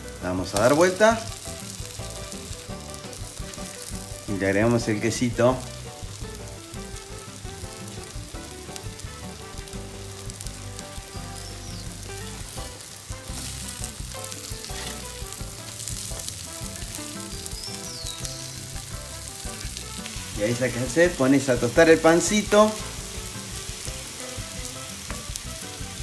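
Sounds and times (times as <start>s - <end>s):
burger patties sizzling on griddle: 0.0s - 26.0s
metal spatula scraping: 12.4s - 21.6s.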